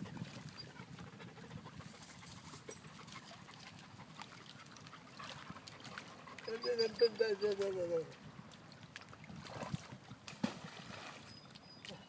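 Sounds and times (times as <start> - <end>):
dog panting: 0.5 - 7.6.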